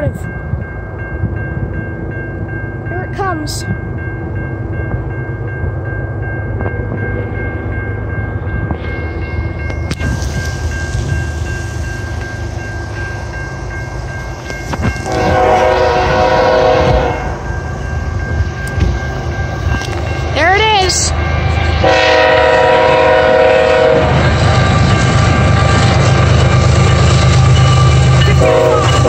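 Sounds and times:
freight train rumbling: 0.0 - 29.0
locomotive horn: 15.0 - 17.4, 21.8 - 26.4, 28.3 - 29.0.

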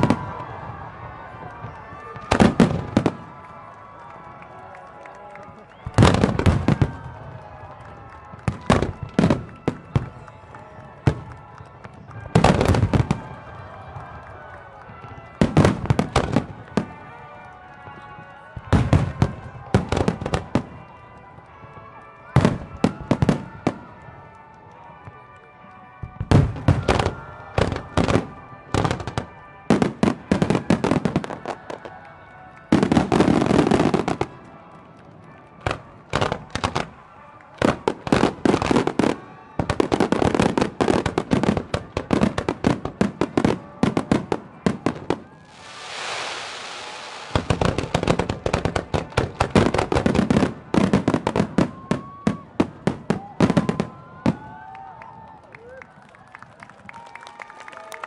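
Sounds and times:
fireworks bangs: 0.0 - 3.6, 5.7 - 17.2, 37.6 - 54.6
music: 0.0 - 55.5
fireworks hiss: 45.5 - 48.7.

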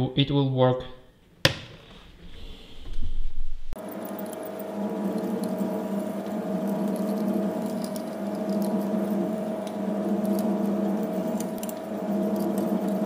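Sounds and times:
lathe motor hum: 3.8 - 13.0.

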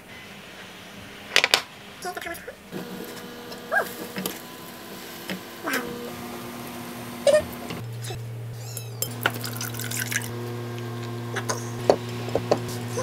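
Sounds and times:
low hum: 2.7 - 13.0
coffee pouring into glass: 9.1 - 10.3.

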